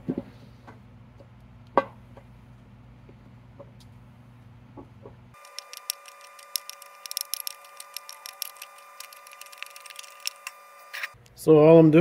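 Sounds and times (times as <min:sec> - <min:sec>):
steady hum: 0:05.3 - 0:11.4.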